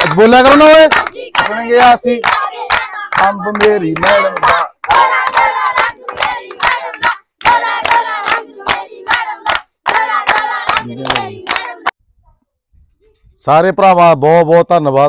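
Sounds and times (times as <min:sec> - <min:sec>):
voices chanting and calling: 0:00.0 - 0:11.9
group clapping in rhythm: 0:00.0 - 0:12.0.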